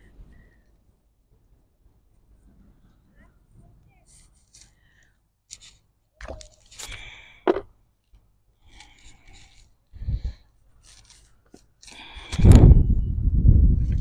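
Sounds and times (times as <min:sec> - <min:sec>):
rubbing and scraping handling noises: 0:02.0 - 0:12.5
dull thump: 0:07.5 - 0:07.7.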